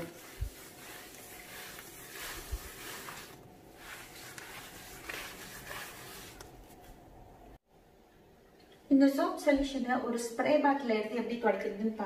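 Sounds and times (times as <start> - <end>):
cloth rubbing on a worktop: 0.0 - 7.0.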